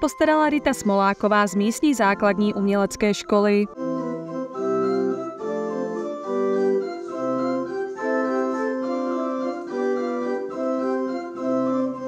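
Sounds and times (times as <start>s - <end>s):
organ playing slow chords: 3.7s - 12.0s.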